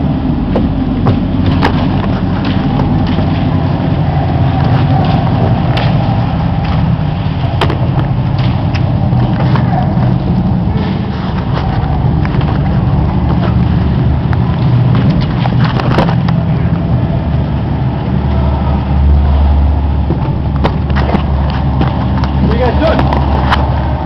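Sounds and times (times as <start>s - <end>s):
low handling rumble: 0.0s - 24.0s
sharp clicks and knocks: 0.5s - 3.7s, 4.4s - 16.5s, 20.0s - 23.9s.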